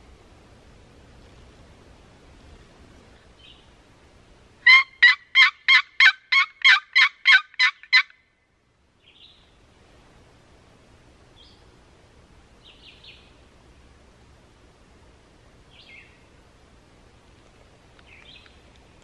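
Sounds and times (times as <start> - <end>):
turkey call yelps: 4.6 - 8.2.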